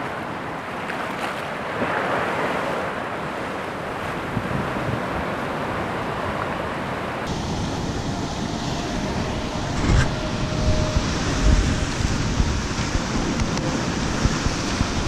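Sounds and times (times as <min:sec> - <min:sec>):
sea swell washing against rock: 0:00.0 - 0:15.0
wind buffeting microphone: 0:03.8 - 0:15.0.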